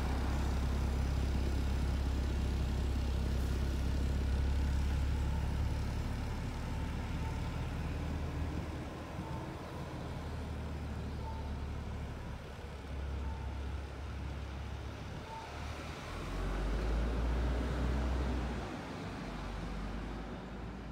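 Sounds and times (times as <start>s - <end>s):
bus engine rumbling: 0.0s - 20.9s
faint short beep: 11.0s - 11.8s.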